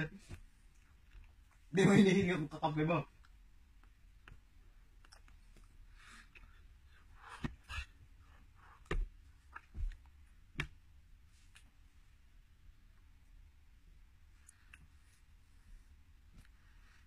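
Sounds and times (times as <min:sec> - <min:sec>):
faint low room hum: 0:00.0 - 0:17.0.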